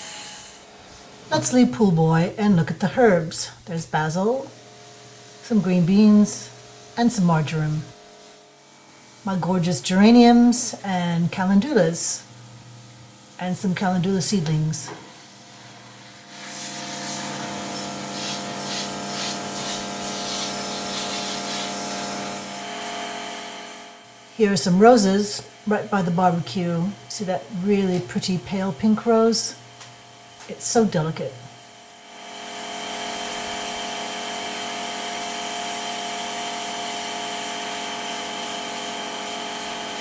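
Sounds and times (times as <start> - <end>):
pulsing hiss: 0.0 - 8.3, 11.6 - 23.0
machine motor hum: 0.0 - 40.0.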